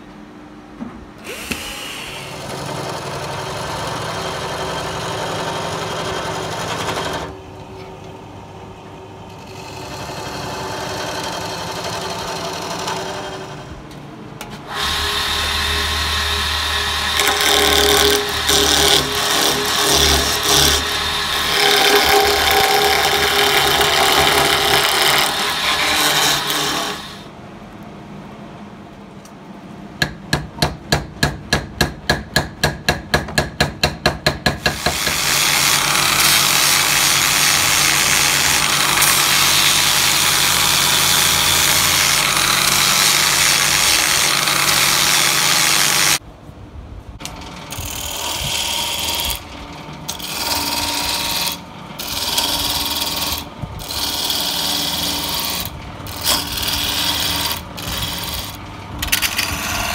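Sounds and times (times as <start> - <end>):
lathe gouge cutting wood: 9.5 - 13.6, 14.7 - 27.2, 34.8 - 46.2, 50.1 - 58.6
angle grinder sanding wood: 14.7 - 27.2, 34.7 - 46.2, 50.2 - 58.6.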